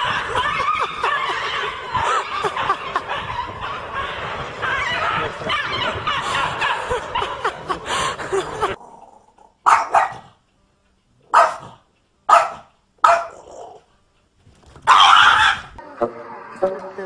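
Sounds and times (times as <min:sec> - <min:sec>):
small dog barking: 0:09.6 - 0:10.4, 0:11.3 - 0:13.8, 0:14.8 - 0:15.7.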